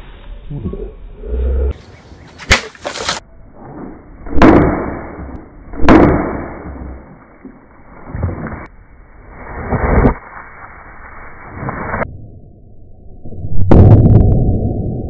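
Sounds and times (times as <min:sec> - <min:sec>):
baseball bat smashing plastic jug: 0:02.4 - 0:03.2.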